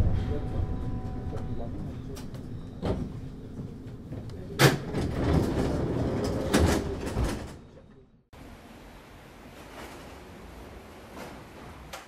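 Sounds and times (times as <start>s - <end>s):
railway car rattling rumble: 0.0s - 8.0s.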